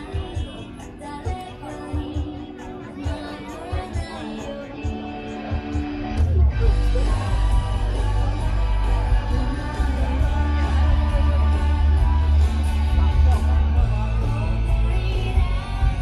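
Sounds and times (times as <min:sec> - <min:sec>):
rock song with singing: 0:00.0 - 0:16.0.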